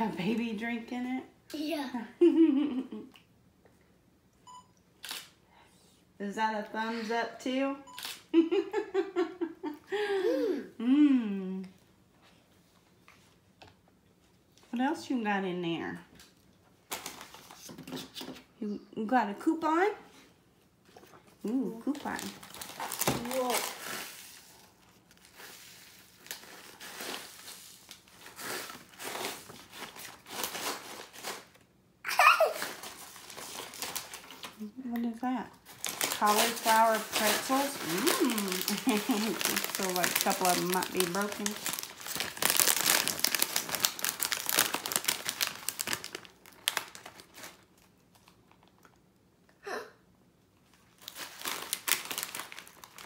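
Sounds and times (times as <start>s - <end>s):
plastic pouch crinkling: 21.9s - 31.6s, 32.6s - 34.6s, 35.6s - 49.0s, 50.7s - 53.0s
child squealing: 32.1s - 32.7s.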